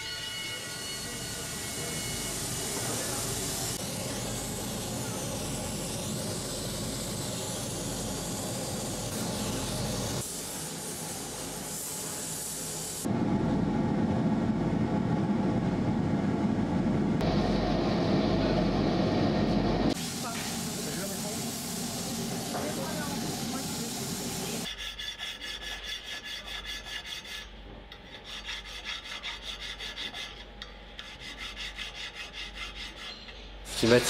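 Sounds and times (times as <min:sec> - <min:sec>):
gas torch flame hissing: 0:02.3 - 0:13.1, 0:19.9 - 0:24.7, 0:33.7 - 0:34.0.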